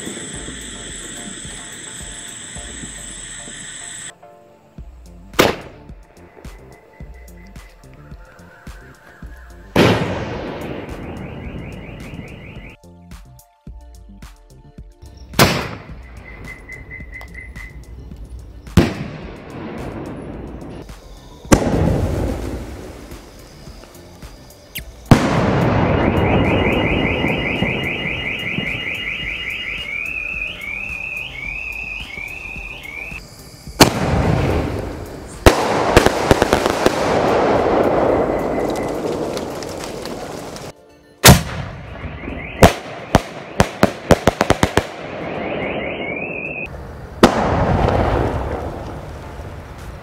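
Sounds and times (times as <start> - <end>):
firework whistle: 0.0 - 4.2, 8.6 - 12.8, 15.6 - 17.9, 21.0 - 40.7, 41.3 - 46.7
firework bang: 9.8 - 12.2, 15.4 - 16.0, 21.5 - 23.4, 25.1 - 28.8, 33.8 - 40.7, 41.3 - 45.6, 47.2 - 49.2
car alarm: 10.8 - 12.8, 16.1 - 17.9, 25.7 - 33.2, 41.9 - 43.6, 45.2 - 46.7
rumbling echo: 46.7 - 49.7.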